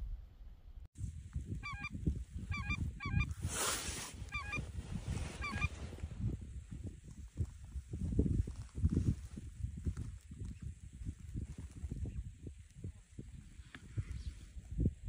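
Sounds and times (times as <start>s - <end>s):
geese honking: 2.5s - 3.3s, 4.3s - 4.6s, 5.4s - 5.7s.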